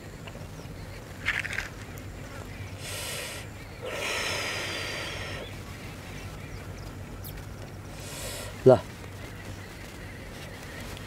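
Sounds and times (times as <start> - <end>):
man smoking cigarette: 2.8 - 5.5.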